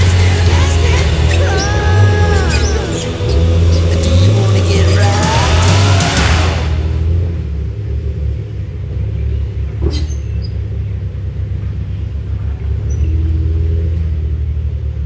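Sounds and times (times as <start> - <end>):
rush of noise: 0.0 - 9.2
engine running at low revs: 0.0 - 15.0.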